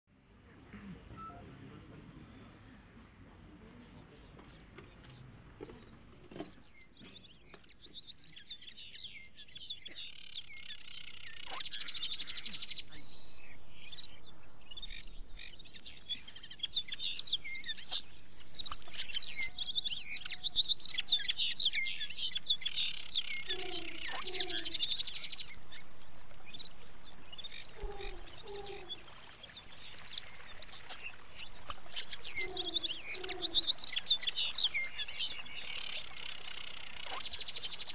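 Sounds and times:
small birds chirping: 0.3 - 37.9
low two-note bird call: 1.1 - 1.6.

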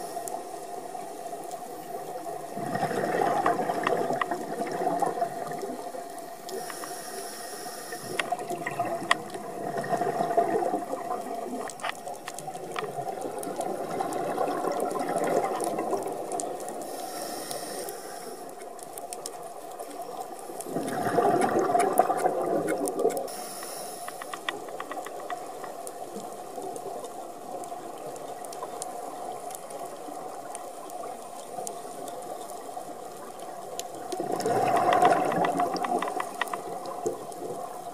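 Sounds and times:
regulator inhale hiss: 0.0 - 0.6, 6.4 - 8.5, 16.7 - 18.7, 23.2 - 24.7
exhaled bubbles rushing: 2.5 - 5.9, 8.3 - 11.7, 12.8 - 16.6, 20.7 - 23.2, 34.1 - 37.7
scattered clicks: 18.5 - 27.7, 33.8 - 37.5.

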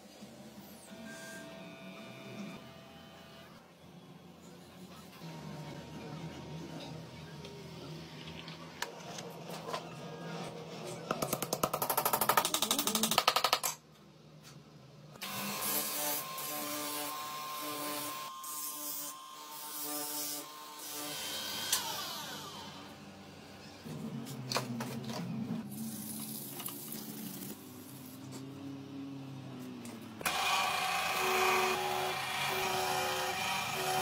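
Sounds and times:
bench grinder grinding metal: 30.3 - 34.0.

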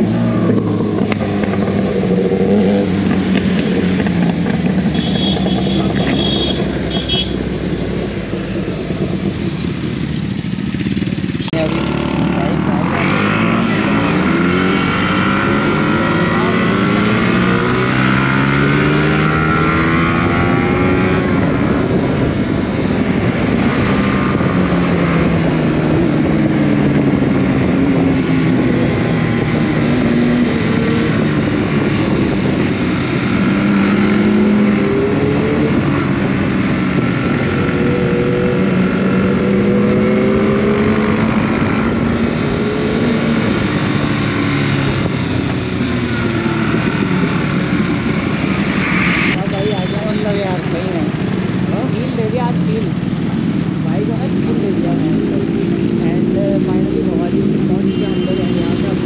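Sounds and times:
motorcycle engines revving: 0.0 - 59.0
wind rush: 12.5 - 57.8.

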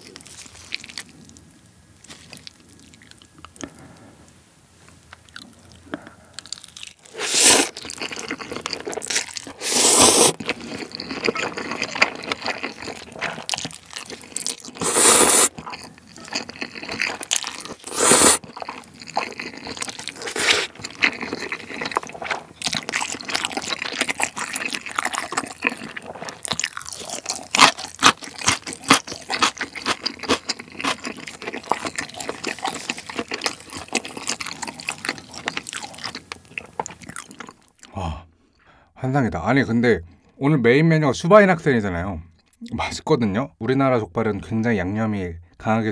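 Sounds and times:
close-up chewing: 0.0 - 38.0
noodle slurping: 7.0 - 36.2.

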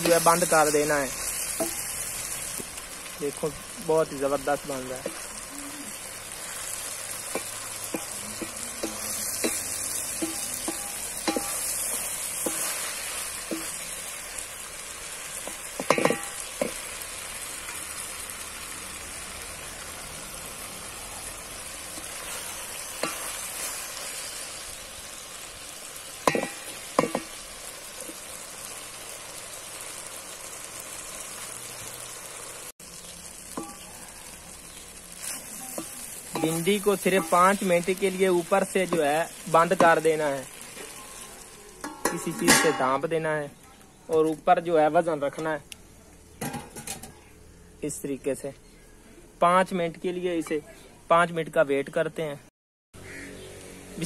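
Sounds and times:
food sizzling in a pot: 0.0 - 52.4
wooden spoon knocking pot: 15.5 - 16.8, 26.3 - 27.3.

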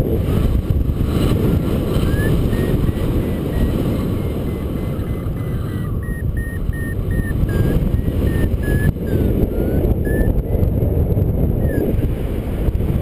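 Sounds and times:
wind rush on microphone: 0.0 - 13.0
variometer beeping: 1.9 - 10.8, 11.6 - 11.9.

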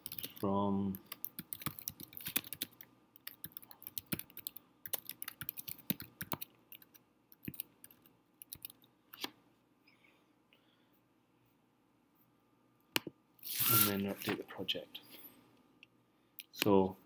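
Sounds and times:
typing on computer keyboard: 0.0 - 8.8.

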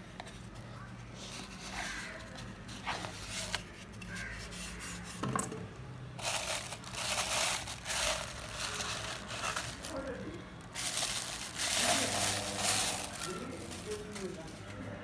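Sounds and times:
plastic bag crinkling: 6.2 - 14.8.

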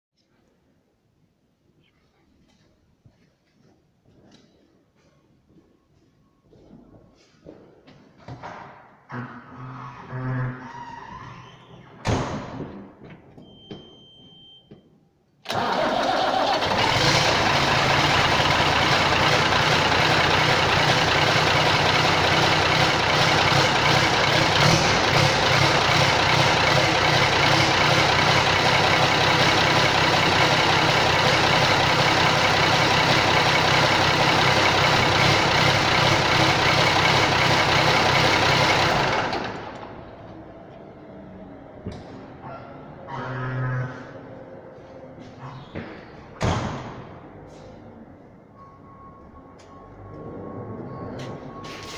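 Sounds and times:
loud tractor diesel engine: 15.4 - 51.9.

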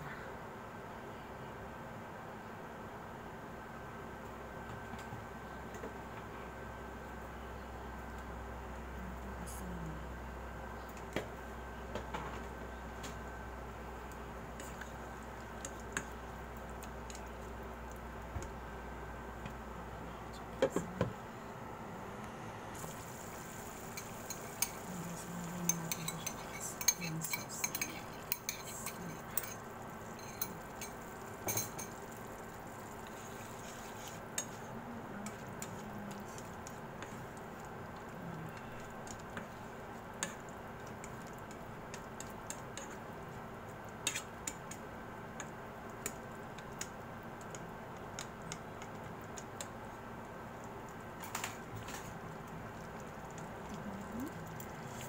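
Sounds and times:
steady background hum: 0.0 - 55.0
vegetables simmering: 3.7 - 55.0
utensil scraping frying pan: 33.0 - 34.7.

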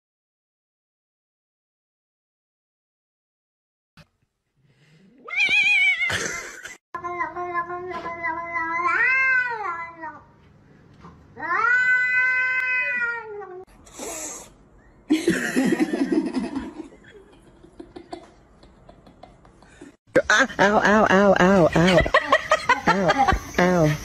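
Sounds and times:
cats yowling: 5.2 - 6.4, 11.4 - 13.7.

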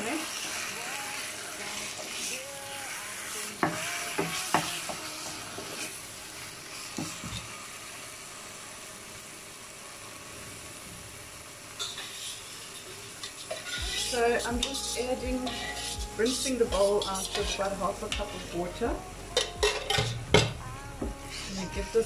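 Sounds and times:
chicken sizzling in a pan: 0.0 - 22.0
wooden spoon scraping a pan: 11.8 - 14.8, 15.4 - 18.7.

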